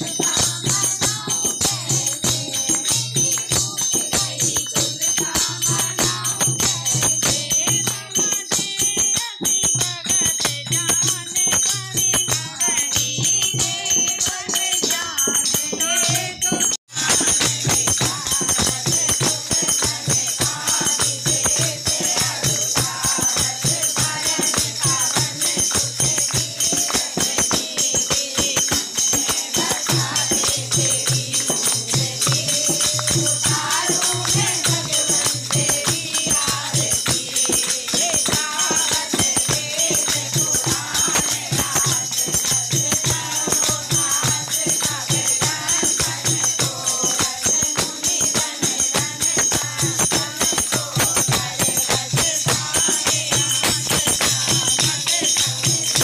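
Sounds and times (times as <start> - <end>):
jingling percussion: 0.0 - 56.0
rhythmic hand-clapping: 0.0 - 56.0
women singing devotional song: 0.0 - 56.0.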